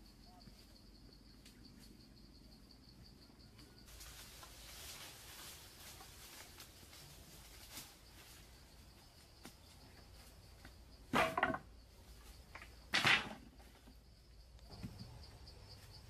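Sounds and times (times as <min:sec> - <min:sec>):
insects chirping: 0:00.0 - 0:16.0
bamboo poles clattering on earth: 0:03.9 - 0:15.2.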